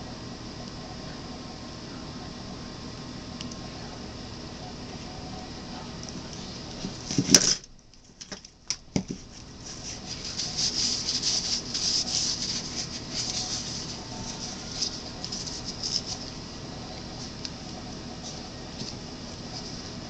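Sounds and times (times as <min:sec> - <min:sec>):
rubbing and rustling: 0:06.2 - 0:07.6, 0:09.0 - 0:20.0.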